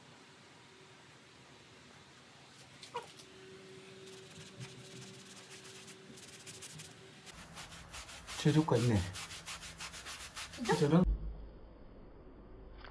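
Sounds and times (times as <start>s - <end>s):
cotton pad scrubbing wallpaper: 4.0s - 11.0s.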